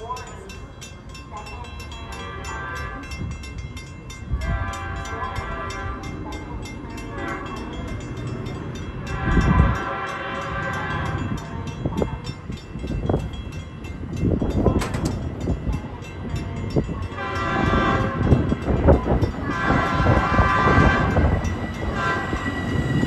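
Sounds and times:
crossing signal bells ringing: 0.0 - 23.0
train horn blasts: 2.1 - 3.4, 4.3 - 8.0, 8.9 - 11.7, 16.8 - 23.0.

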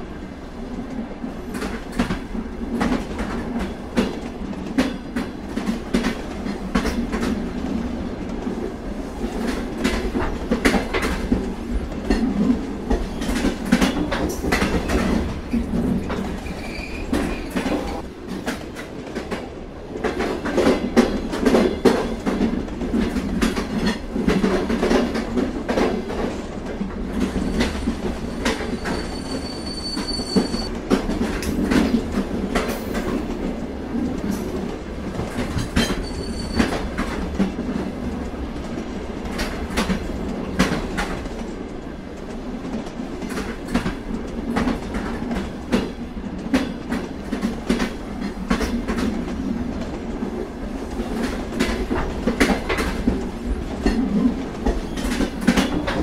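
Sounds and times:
freight train cars rumbling: 0.0 - 56.0
high wheel squeal: 16.4 - 17.5, 27.4 - 30.7, 35.9 - 36.8.

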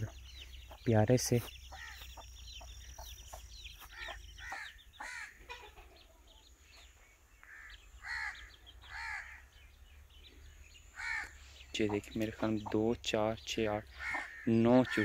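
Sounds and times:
chicks peeping: 0.0 - 15.0
crow cawing: 1.7 - 2.1, 3.9 - 5.4, 7.4 - 9.5, 10.9 - 11.4, 13.9 - 15.0.

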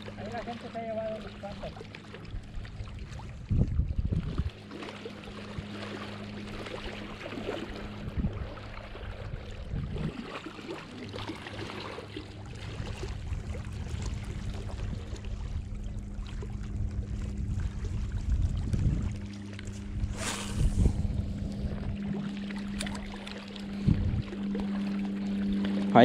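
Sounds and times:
wind rumble on microphone: 0.0 - 4.7, 6.8 - 10.4, 12.4 - 24.9
steady low hum: 0.0 - 26.0.

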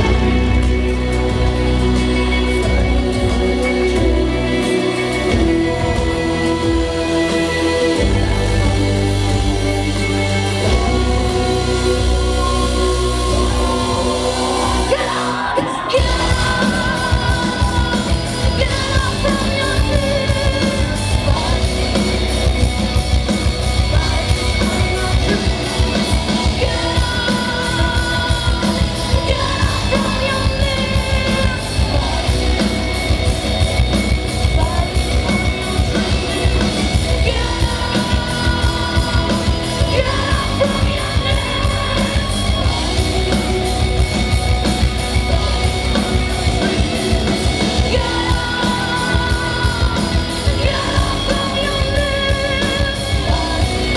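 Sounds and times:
distorted electric guitars: 0.0 - 53.9
woman singing: 0.0 - 53.9
fast dense drumming: 15.9 - 53.9.

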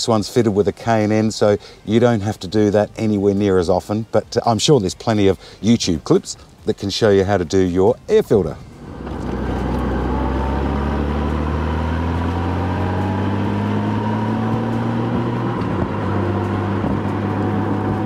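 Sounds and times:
wind and road noise: 0.0 - 18.0
motorcycle engine running: 9.1 - 18.0.

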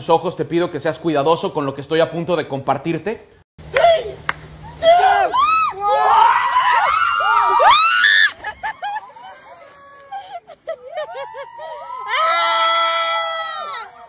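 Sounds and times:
long held shout: 3.7 - 8.3, 10.9 - 14.0
young men screaming and yelling: 3.7 - 8.4, 10.9 - 14.0.

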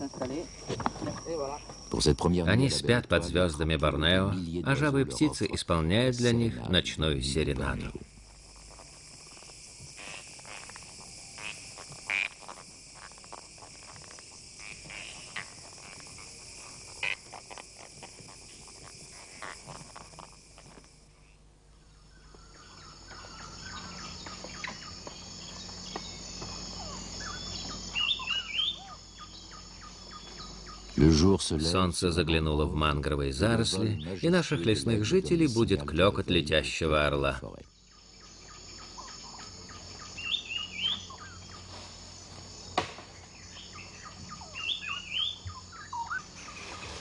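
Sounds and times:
frog calls: 0.0 - 32.6, 33.2 - 35.7, 36.9 - 41.7, 43.3 - 47.0
insects trilling: 0.0 - 47.0
birds chirping: 21.2 - 41.8, 42.6 - 47.0.

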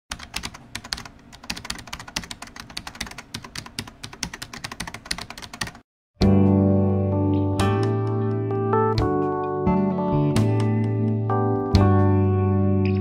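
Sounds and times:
computer keyboard typing: 0.1 - 5.8.

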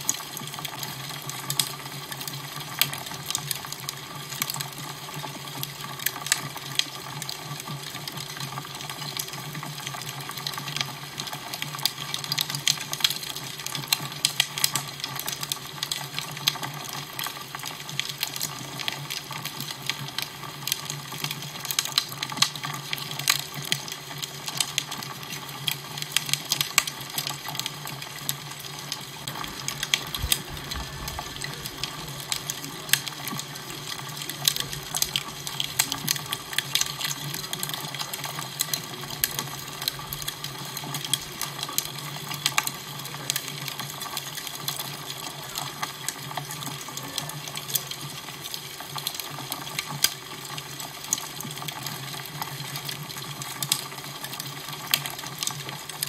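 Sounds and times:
fire crackling: 0.0 - 56.0
low steady hum: 29.3 - 38.2.

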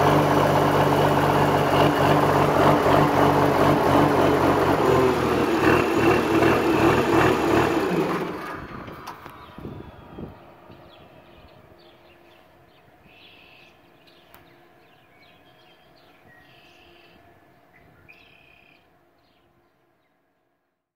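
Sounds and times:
birds chirping: 8.9 - 20.2.

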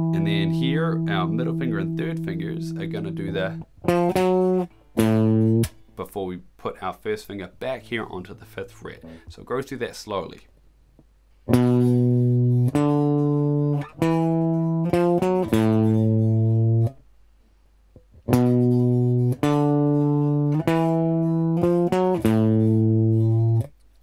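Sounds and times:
electric guitar riff: 0.0 - 5.8, 8.4 - 9.3, 11.5 - 17.0, 18.2 - 23.7.

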